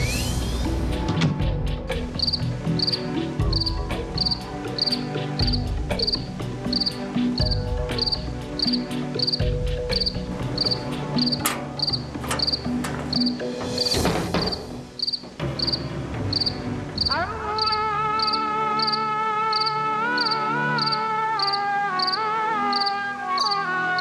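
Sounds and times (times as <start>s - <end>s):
cricket chirping: 2.2s - 24.0s.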